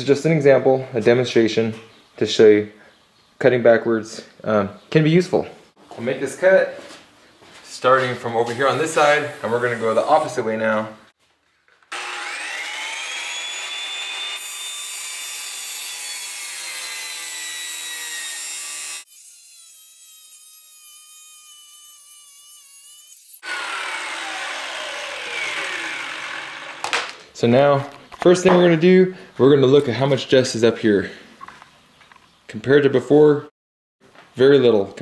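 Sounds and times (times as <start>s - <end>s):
circular saw cutting plywood: 8.4s - 10.6s, 11.9s - 27.1s.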